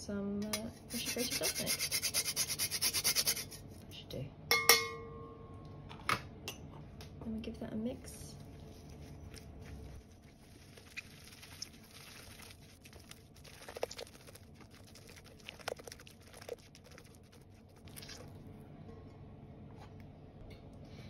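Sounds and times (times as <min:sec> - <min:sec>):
spatula stirring batter in bowl: 0:08.4 - 0:18.3.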